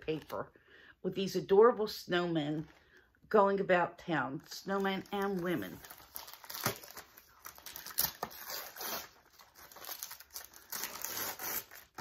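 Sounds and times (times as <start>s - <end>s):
wrapping paper tearing and rustling: 5.0s - 12.0s.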